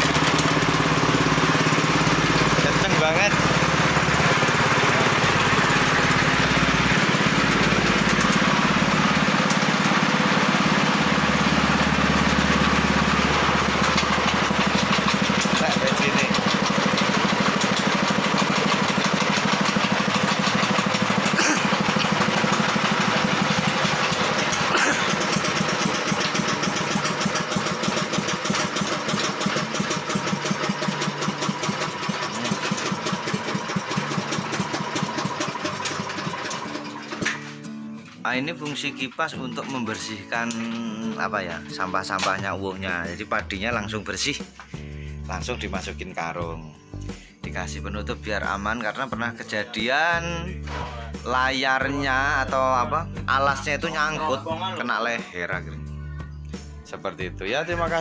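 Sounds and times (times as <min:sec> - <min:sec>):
thresher drum spinning: 0:00.0 - 0:37.6
small engine running: 0:00.0 - 0:38.2.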